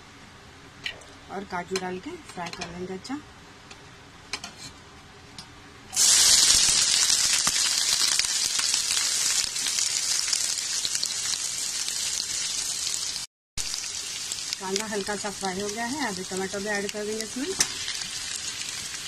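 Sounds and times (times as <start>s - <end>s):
food sizzling in hot oil: 6.0s - 19.0s.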